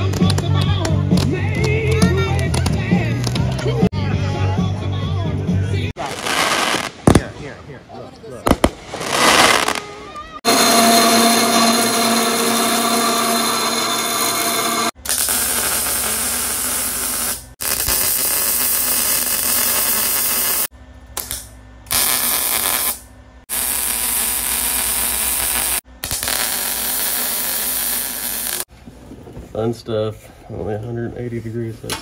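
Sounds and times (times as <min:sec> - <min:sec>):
power tool running: 0:10.4 - 0:20.7.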